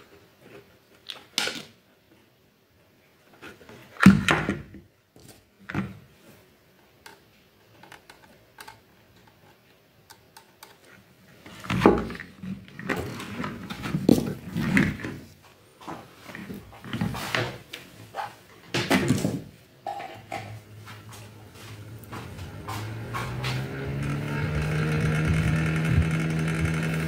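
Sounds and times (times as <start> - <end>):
plastic parts clattering and rubbing: 6.9 - 15.4.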